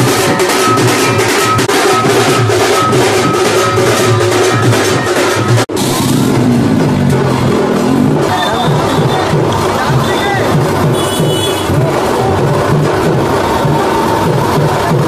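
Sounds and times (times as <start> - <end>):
higher repeating tune: 0.0 - 11.0
barrel drums beating: 0.0 - 15.0
crowd hubbub: 0.0 - 15.0.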